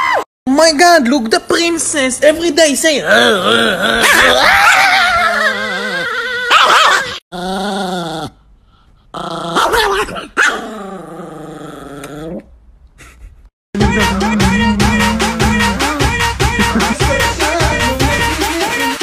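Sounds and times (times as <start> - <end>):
small dog growling and snarling: 3.0 - 8.5, 9.1 - 12.5.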